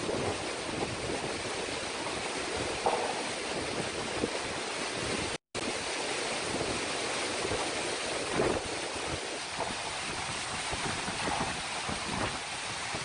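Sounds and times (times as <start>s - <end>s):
strong wind and heavy rain: 0.0s - 13.0s.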